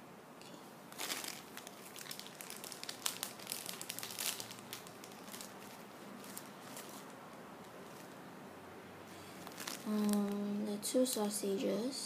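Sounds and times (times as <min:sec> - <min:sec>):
plastic bag crinkling: 0:00.9 - 0:08.2, 0:09.2 - 0:11.4.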